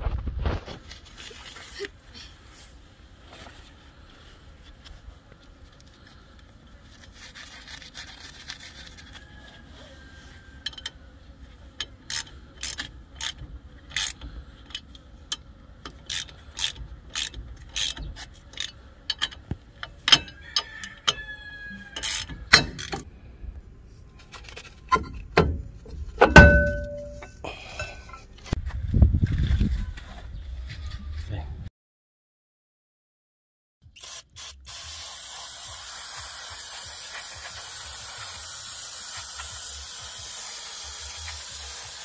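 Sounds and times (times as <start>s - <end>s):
metal clicking on brake drum: 22.0s - 23.1s, 24.9s - 28.0s
ringing metal clanks: 26.2s - 28.2s.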